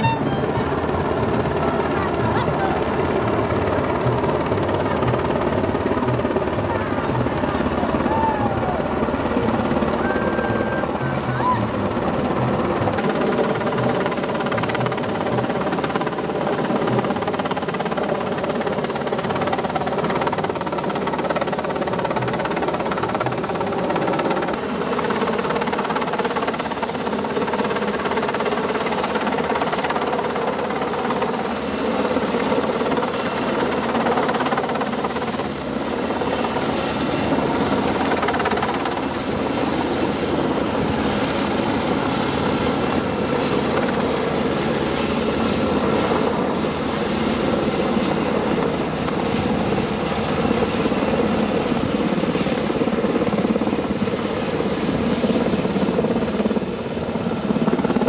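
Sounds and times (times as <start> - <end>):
helicopter rotor and engine: 0.0 - 58.0.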